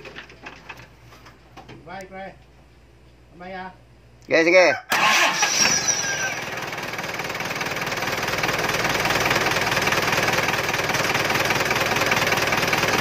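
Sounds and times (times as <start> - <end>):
diesel engine idling: 5.0 - 13.0.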